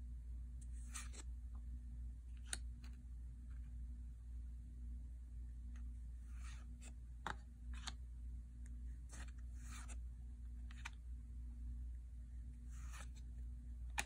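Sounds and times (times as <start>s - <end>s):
cards sliding against cards: 0.6s - 1.3s, 6.2s - 8.0s, 9.0s - 10.0s, 10.6s - 11.0s, 12.6s - 13.3s.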